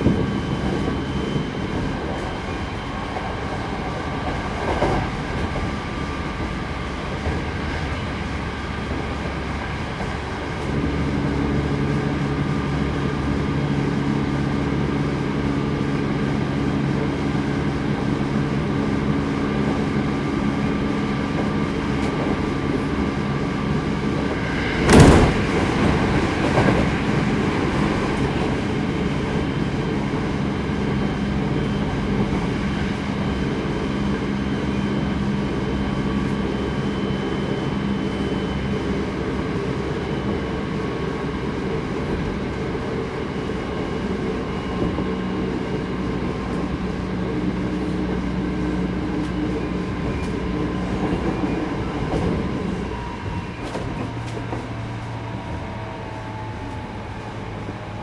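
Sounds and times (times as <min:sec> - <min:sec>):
train wheels rumbling on rails: 0:00.0 - 0:58.0
loud burst of noise: 0:24.4 - 0:27.4.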